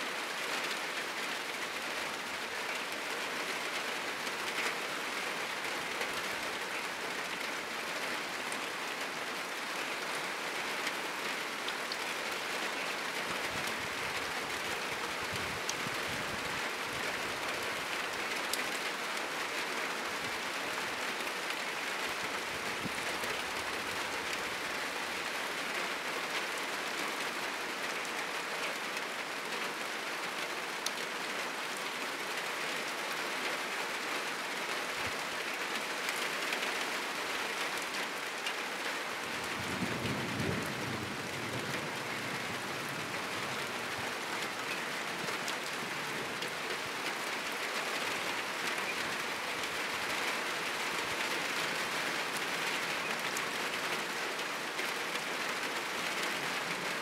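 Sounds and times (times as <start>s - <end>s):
heavy rain on a roof: 0.0s - 57.0s
low rumble of thunder: 39.5s - 42.7s.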